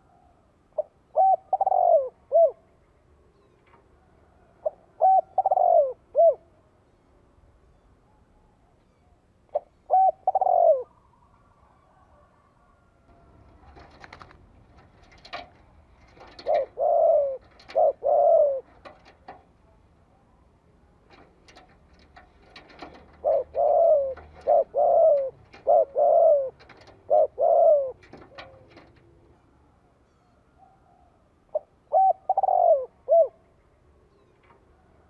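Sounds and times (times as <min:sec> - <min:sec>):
dove cooing: 0:00.0 - 0:02.7, 0:04.4 - 0:06.5, 0:09.5 - 0:19.4, 0:21.1 - 0:29.2, 0:30.6 - 0:33.6.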